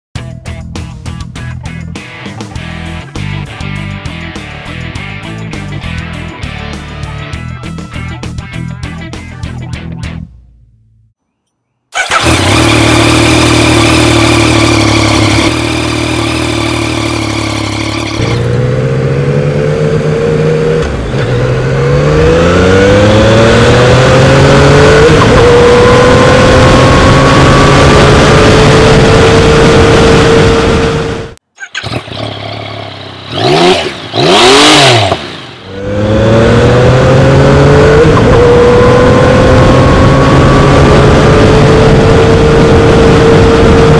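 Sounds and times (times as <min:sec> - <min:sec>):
motorcycle engine accelerating: 0:12.0 - 0:43.9.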